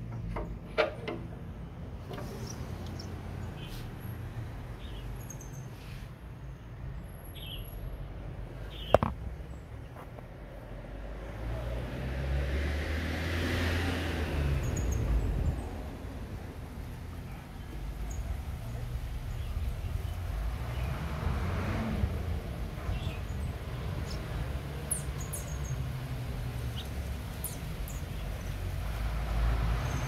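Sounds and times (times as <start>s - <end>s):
low rumble of traffic: 0.0s - 30.0s
vehicle passing: 10.4s - 30.0s.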